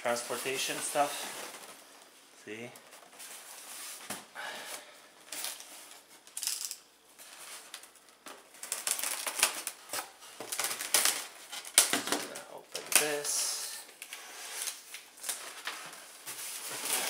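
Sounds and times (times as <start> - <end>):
packaging rustling: 7.2 - 13.2
packaging clicks and crackles: 7.7 - 13.2.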